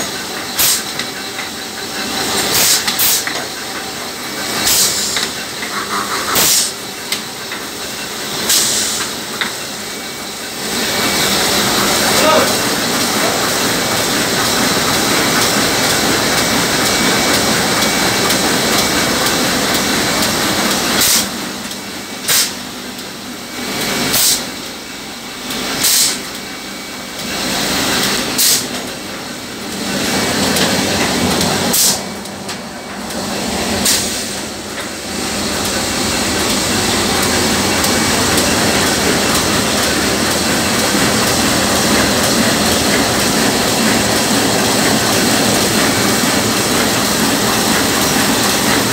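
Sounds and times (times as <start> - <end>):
printing press clattering: 10.7 - 22.5, 27.2 - 48.9.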